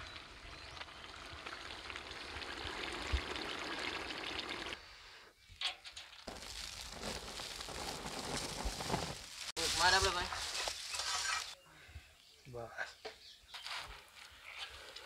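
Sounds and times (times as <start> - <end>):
flour rustling: 6.3 - 11.6.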